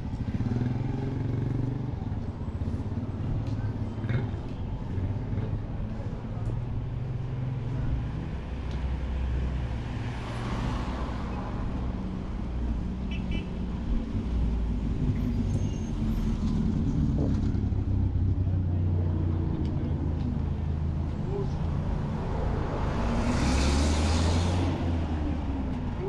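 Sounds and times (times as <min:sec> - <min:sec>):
traffic engines running: 0:00.0 - 0:26.0
vehicle passing close by: 0:21.9 - 0:25.9.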